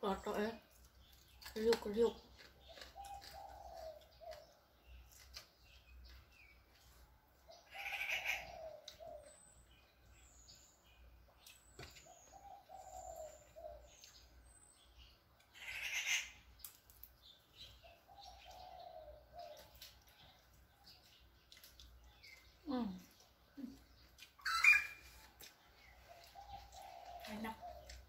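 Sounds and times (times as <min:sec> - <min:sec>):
small birds chirping: 0:00.0 - 0:28.0
crunchy food being chewed: 0:00.6 - 0:09.4, 0:16.4 - 0:28.0
dove cooing: 0:03.0 - 0:04.5, 0:07.7 - 0:09.4, 0:12.3 - 0:13.9, 0:18.1 - 0:19.7, 0:26.1 - 0:28.0.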